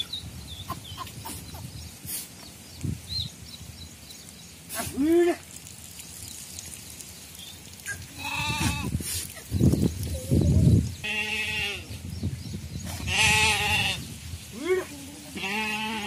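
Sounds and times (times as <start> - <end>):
sheep and goats bleating: 8.1 - 9.0, 11.0 - 11.9, 13.0 - 16.0.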